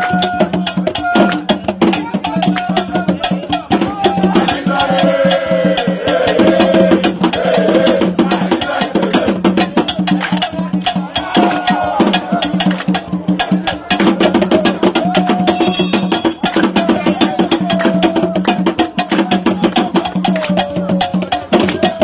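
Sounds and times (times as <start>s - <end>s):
fast busy percussion rhythm: 0.0s - 22.0s
wavering melodic line: 15.6s - 16.8s.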